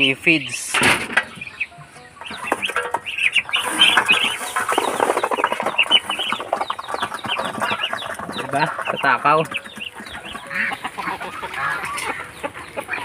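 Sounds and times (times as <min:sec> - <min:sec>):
ducklings peeping: 0:00.0 - 0:13.0
bills pecking on metal pan: 0:02.0 - 0:12.2.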